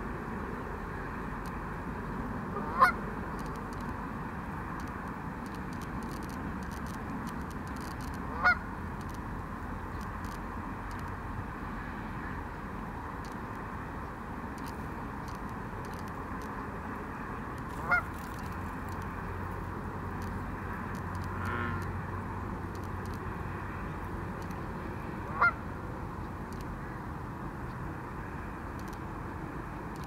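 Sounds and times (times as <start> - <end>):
goose honking: 2.6 - 3.0, 8.3 - 8.6, 17.8 - 18.1, 21.4 - 21.9, 25.3 - 25.6.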